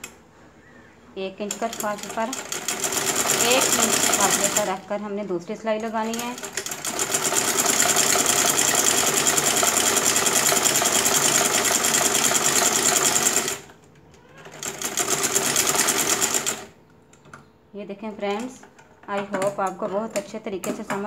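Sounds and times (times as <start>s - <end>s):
sewing machine running: 1.5s - 4.8s, 6.0s - 13.7s, 14.3s - 16.7s.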